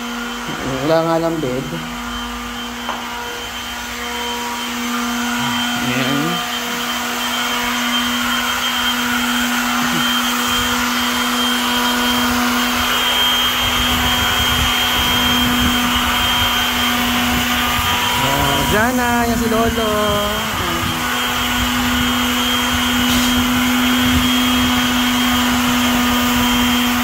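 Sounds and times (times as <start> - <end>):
electric motor hum and whine: 0.0 - 27.0.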